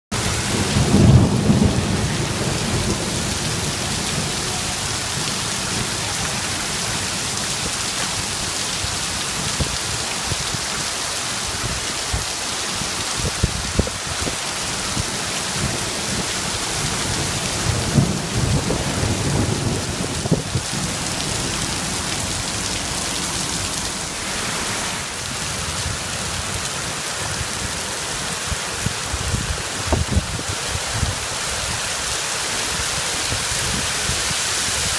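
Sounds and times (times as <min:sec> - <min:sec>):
torrential rain on pavement: 0:00.1 - 0:34.9
car driving through water: 0:14.4 - 0:29.0.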